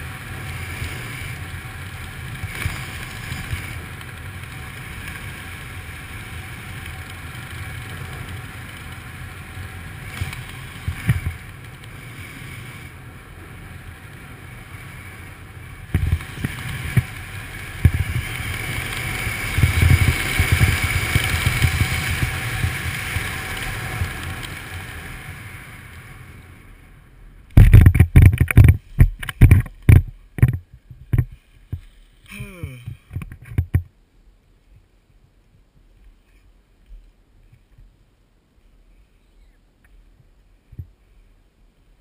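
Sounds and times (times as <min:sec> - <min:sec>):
wind rushing over microphone: 0:00.0 - 0:31.8.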